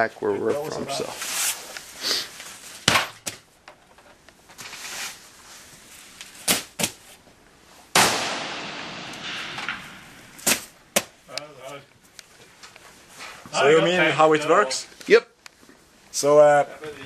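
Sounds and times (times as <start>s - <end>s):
rifle shots echoing: 7.9s - 11.2s.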